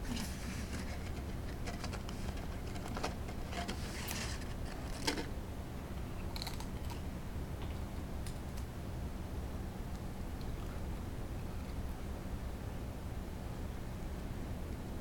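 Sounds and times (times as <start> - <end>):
potato chip crunching: 6.3 - 7.0.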